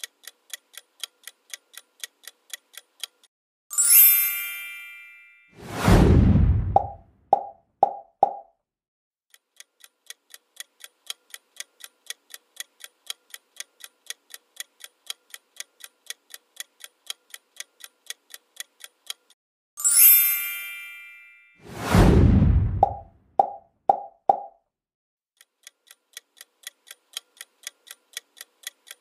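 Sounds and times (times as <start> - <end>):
clock-like ticking: 0.0 - 3.3, 9.3 - 19.4, 25.4 - 29.0
bright chime: 3.7 - 5.6, 19.8 - 21.7
loud swoosh: 5.6 - 7.0, 21.6 - 23.1.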